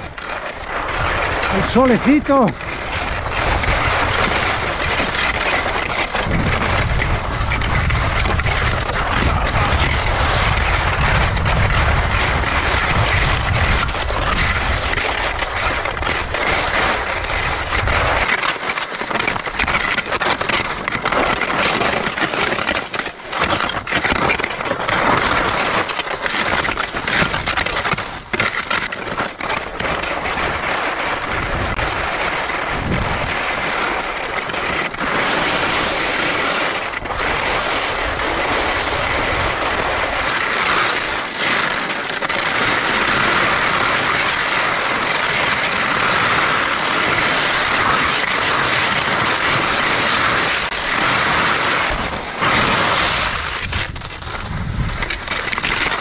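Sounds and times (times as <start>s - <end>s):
wind buffeting microphone: 0.9s - 18.3s, 30.3s - 34.1s, 36.8s - 56.0s
footsteps crunching on rough ground: 38.9s - 56.0s.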